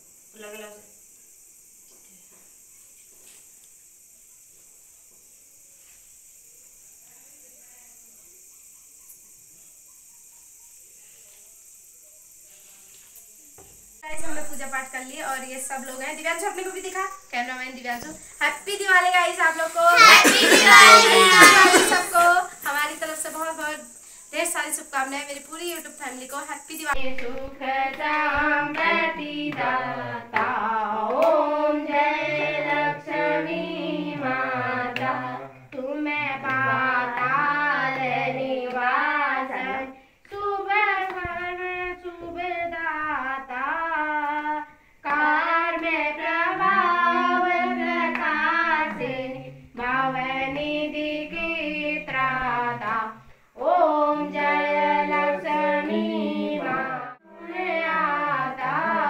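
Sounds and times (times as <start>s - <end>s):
women and children singing a hymn: 14.0s - 24.9s, 25.5s - 59.0s
hands clapping along: 26.9s - 29.7s, 30.3s - 31.4s, 35.0s - 37.4s, 40.2s - 41.4s, 48.0s - 48.4s.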